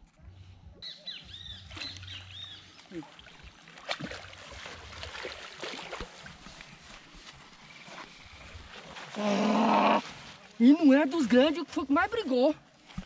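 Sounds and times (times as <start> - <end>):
birds chirping: 0.8 - 3.5
fish thrashing and water splashing: 1.7 - 10.3.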